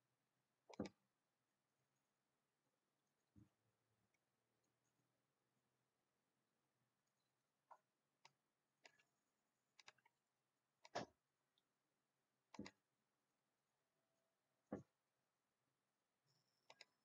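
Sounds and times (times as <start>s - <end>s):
computer mouse clicking: 0.7s - 1.0s, 8.2s - 9.1s, 9.8s - 10.2s, 10.8s - 11.1s, 12.5s - 12.8s, 16.6s - 17.0s.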